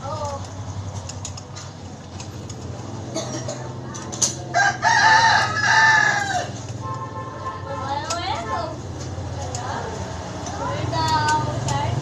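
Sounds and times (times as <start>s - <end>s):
clicks of metal bike parts: 0.1s - 2.8s, 3.9s - 4.7s, 7.9s - 9.8s, 10.4s - 12.0s
rooster crowing: 4.5s - 6.6s.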